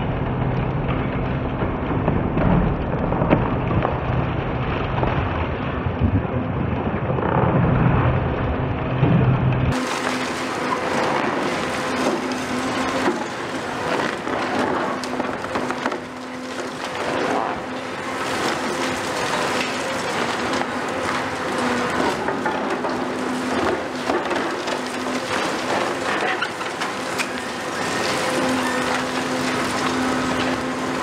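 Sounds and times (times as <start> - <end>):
concrete cracking and crunching: 0.2 - 31.0
excavator diesel engine hum: 9.6 - 31.0.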